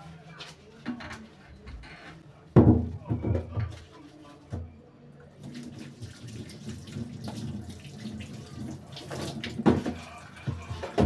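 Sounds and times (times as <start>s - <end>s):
tap water splashing into sink: 5.4s - 11.0s.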